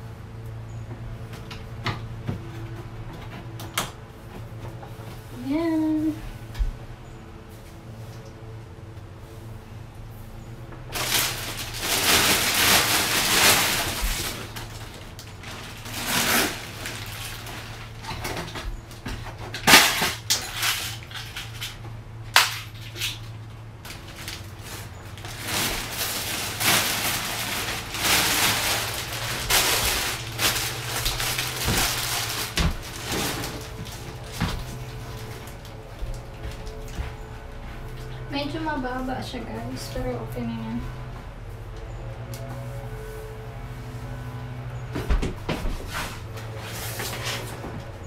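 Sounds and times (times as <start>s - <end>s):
steady low hum: 0.0s - 48.0s
plastic packaging rustling: 10.9s - 21.8s, 22.6s - 37.1s.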